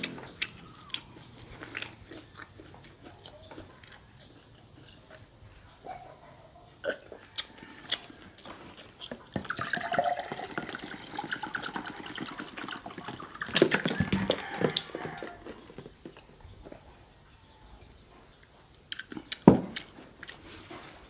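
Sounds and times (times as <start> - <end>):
juice pouring into glass: 9.4 - 13.8.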